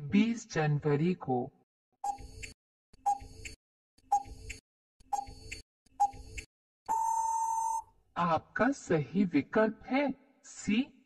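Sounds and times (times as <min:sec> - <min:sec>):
timer ticks: 0:02.0 - 0:06.5
long steady beep: 0:06.9 - 0:07.8.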